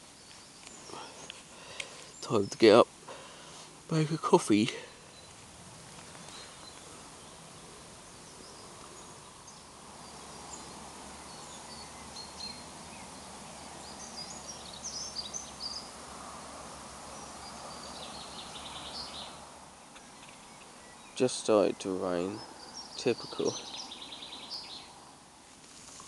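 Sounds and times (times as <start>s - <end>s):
faint background hiss: 0.0s - 26.0s
bird chirps: 4.8s - 5.4s, 6.0s - 16.0s, 17.1s - 25.0s.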